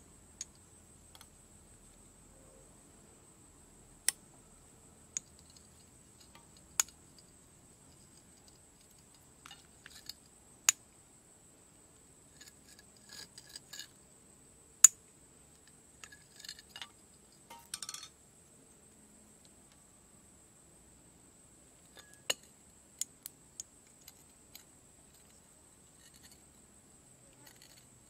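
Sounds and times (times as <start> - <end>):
metal parts clinking and scraping: 7.9 - 10.2, 16.0 - 18.1, 24.0 - 26.5, 27.4 - 27.9.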